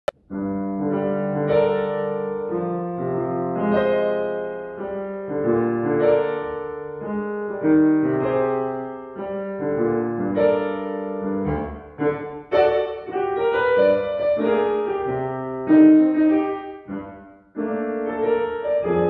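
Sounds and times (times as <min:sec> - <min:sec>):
grand piano chords: 0:00.1 - 0:19.0.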